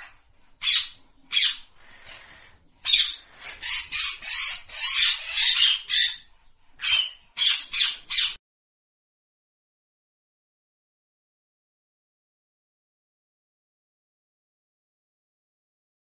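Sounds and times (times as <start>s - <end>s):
parrot harsh squawks: 0.0s - 8.4s.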